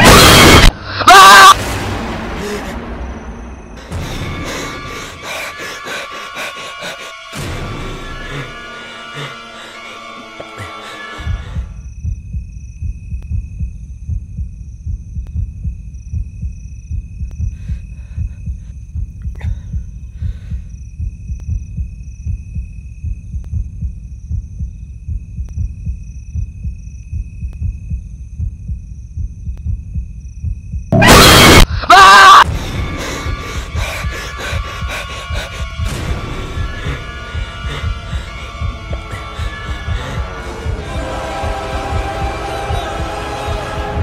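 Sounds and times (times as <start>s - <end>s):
heartbeat thudding: 11.3s - 31.2s, 33.3s - 43.2s.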